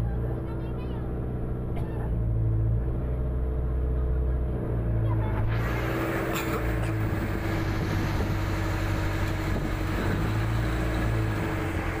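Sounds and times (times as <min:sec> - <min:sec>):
boat engine droning: 0:00.0 - 0:12.0
wind noise: 0:07.0 - 0:11.9.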